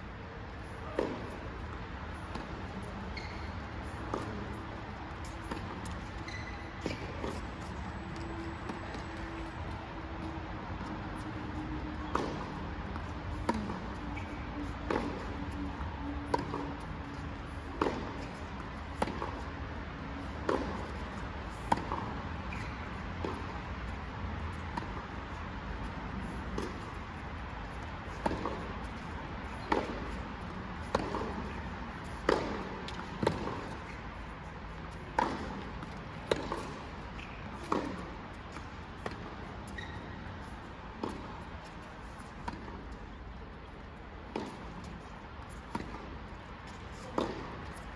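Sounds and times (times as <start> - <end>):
tennis ball bouncing on court: 0.6 - 43.0, 43.6 - 47.9
tennis ball struck by racket: 0.8 - 1.4, 2.2 - 7.5, 12.0 - 15.3, 16.3 - 19.5, 20.2 - 23.6, 24.7 - 25.1, 26.2 - 26.9, 28.0 - 34.1, 34.7 - 40.0, 41.0 - 41.4, 42.1 - 42.8, 44.2 - 47.9.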